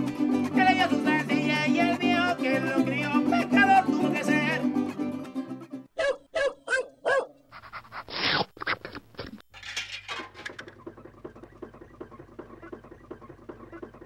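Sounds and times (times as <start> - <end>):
dog barking: 6.0 - 7.4
dog panting: 7.5 - 8.4.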